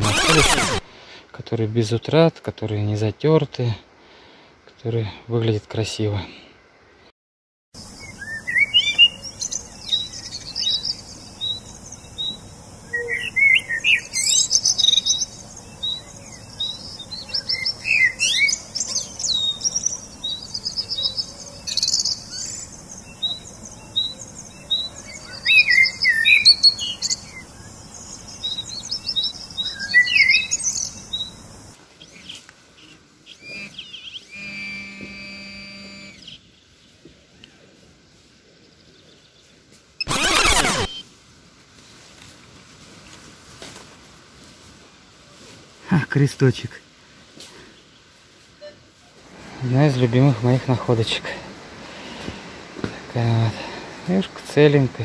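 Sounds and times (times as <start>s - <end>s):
songbirds chirping: 7.8s - 41.0s, 44.9s - 55.0s.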